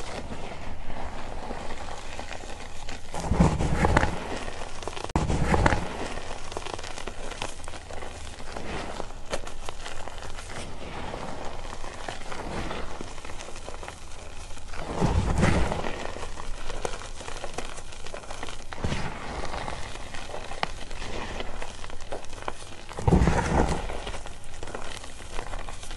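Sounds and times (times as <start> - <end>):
hands crushing chalk chunks: 0.0 - 25.9
powder sifting hiss: 0.0 - 25.9.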